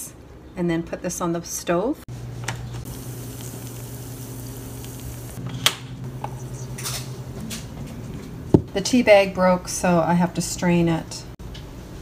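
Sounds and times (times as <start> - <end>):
steady low hum: 2.1 - 8.9
butter sizzling in a pot: 2.8 - 5.4.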